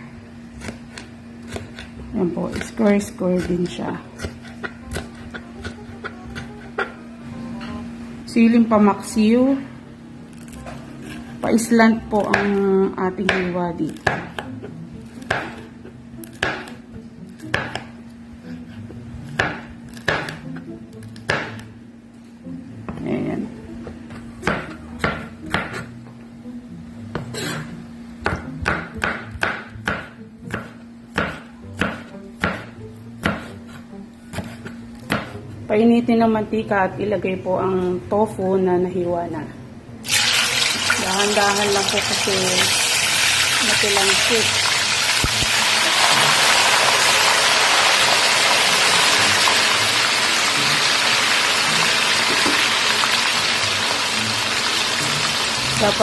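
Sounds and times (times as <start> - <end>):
knife chopping on cutting board: 0.6 - 7.0, 12.2 - 15.7, 16.3 - 16.8, 17.4 - 18.0, 19.3 - 20.6, 21.2 - 21.7, 24.4 - 25.9, 28.2 - 35.4
tofu deep-frying in hot oil: 40.0 - 56.0.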